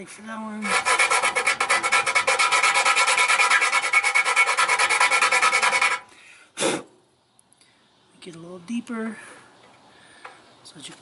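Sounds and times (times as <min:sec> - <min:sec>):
hand file rasping on metal: 0:00.6 - 0:06.0
short file scrape: 0:00.6 - 0:06.0.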